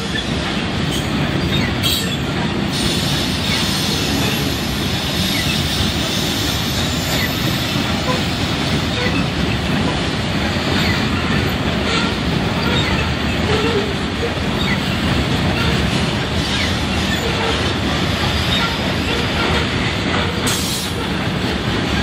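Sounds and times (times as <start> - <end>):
freight train wheels rumbling: 0.0 - 22.0.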